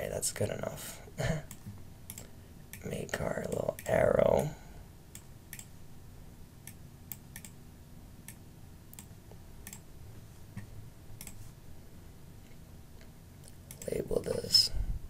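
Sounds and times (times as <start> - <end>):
low steady hum: 0.0 - 15.0
computer mouse clicks: 1.5 - 2.9, 5.1 - 5.7, 6.6 - 7.6, 8.2 - 9.9, 10.6 - 11.4, 13.4 - 14.0.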